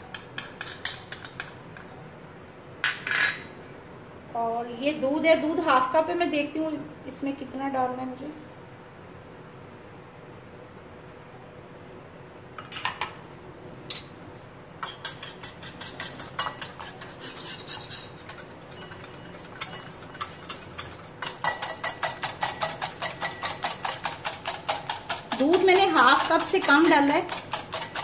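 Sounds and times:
whisk clicking against glass bowl: 14.8 - 28.0.

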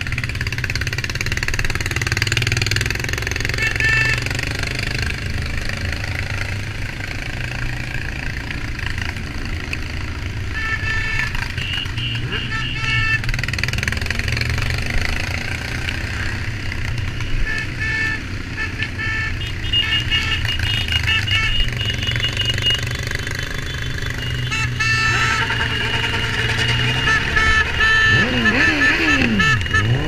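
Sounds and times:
motorcycle engines droning: 0.0 - 30.0
short horn beeps: 3.5 - 4.3, 10.5 - 13.2, 17.0 - 30.0.

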